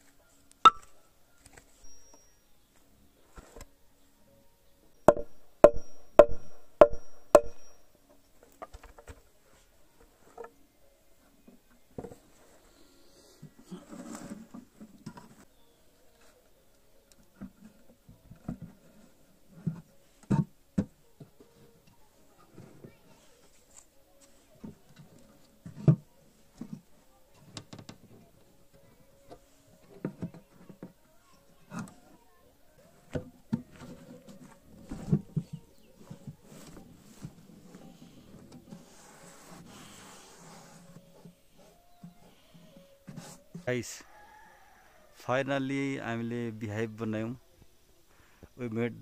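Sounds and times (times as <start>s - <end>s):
hammer striking nail into wood: 5.1s - 7.7s.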